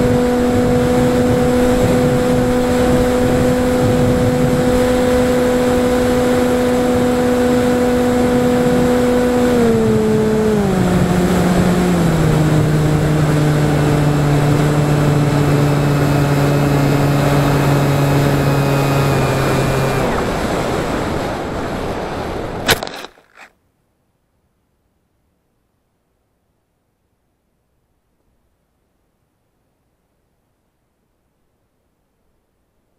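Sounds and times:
electric motor and propeller humming: 0.0s - 21.6s
wind rush on microphone: 0.0s - 22.7s.

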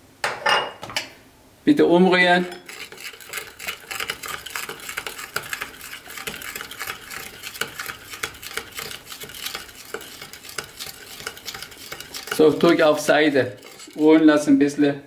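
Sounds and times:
spoon clinking and scraping glass bowl: 2.4s - 14.4s.

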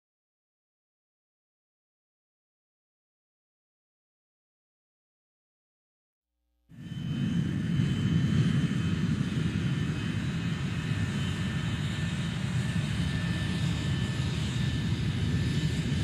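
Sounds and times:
aircraft engine drone: 6.7s - 16.0s.

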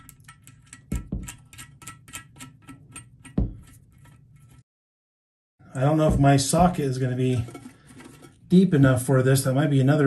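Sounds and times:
metal washer and nut clinking: 0.0s - 4.6s
dull knocks: 3.4s - 3.7s.

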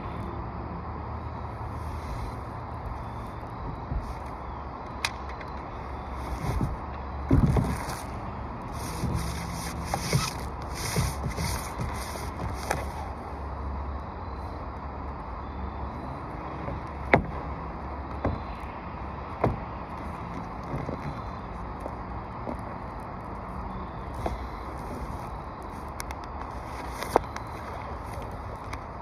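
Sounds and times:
tape crinkling and rustling: 6.2s - 13.2s, 19.9s - 28.9s.

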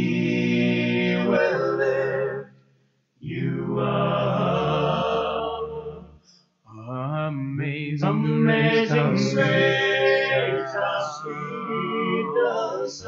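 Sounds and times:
male vocal quartet singing: 0.0s - 2.4s, 3.2s - 6.1s, 6.7s - 13.0s.

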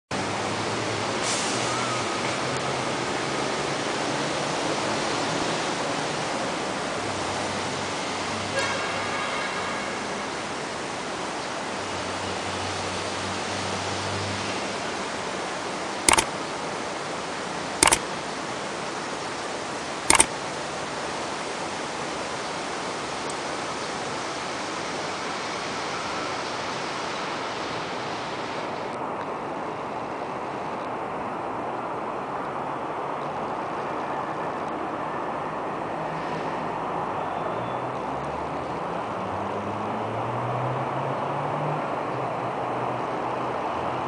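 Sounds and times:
sharp clicks: 16.1s - 16.3s, 17.8s - 18.0s.

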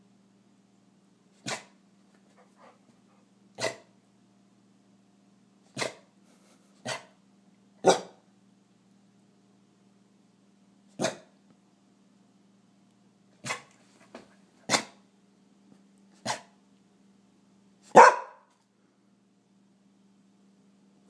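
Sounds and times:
dog barking: 1.4s - 1.8s, 3.6s - 3.9s, 5.8s - 6.1s, 6.8s - 7.2s, 7.8s - 8.2s, 11.0s - 11.3s, 13.4s - 13.7s, 14.7s - 15.0s, 16.2s - 16.5s, 17.9s - 18.5s.

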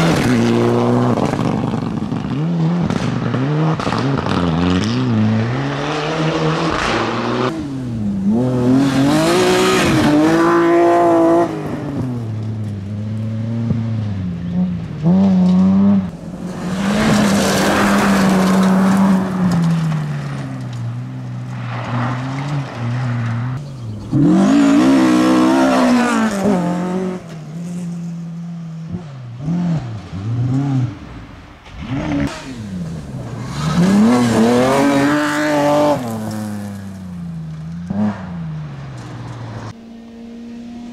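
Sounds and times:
rally car engines revving: 0.0s - 40.9s
gravel spraying under tyres: 16.1s - 23.6s.

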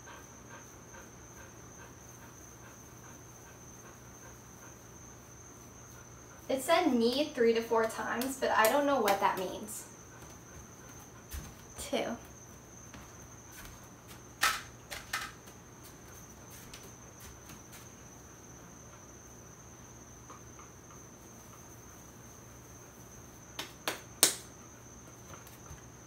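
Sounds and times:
hands slapping dough: 7.8s - 9.6s, 23.6s - 24.5s.

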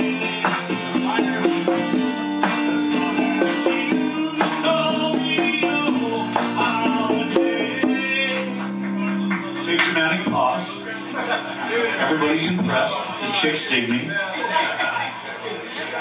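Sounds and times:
acoustic guitar song from speakers: 0.0s - 16.0s.

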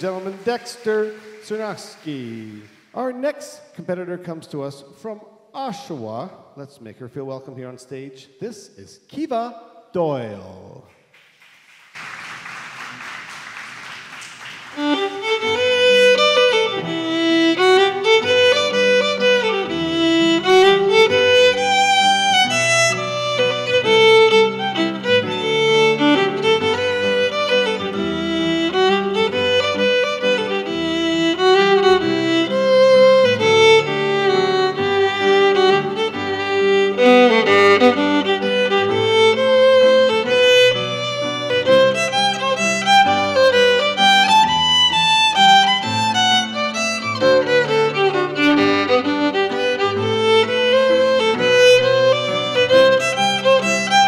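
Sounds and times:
applause: 0.0s - 3.0s, 11.0s - 16.6s
solo fiddle tune: 14.8s - 54.0s.

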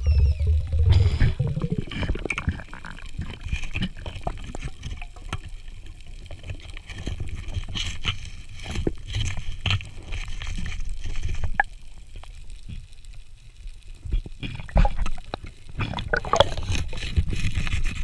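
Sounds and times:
muffled underwater rush: 0.0s - 7.4s, 14.7s - 18.0s
clicks and crackles: 0.1s - 18.0s.

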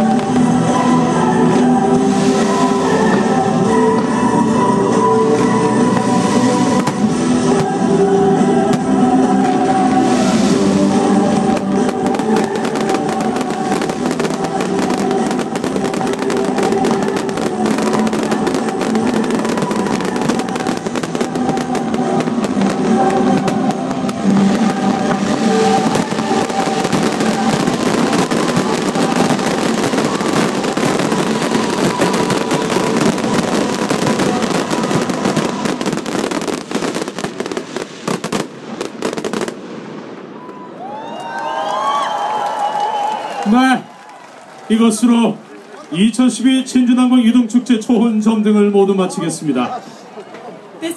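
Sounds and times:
music playing: 0.0s - 39.5s
fireworks bangs and crackling: 0.0s - 40.7s.

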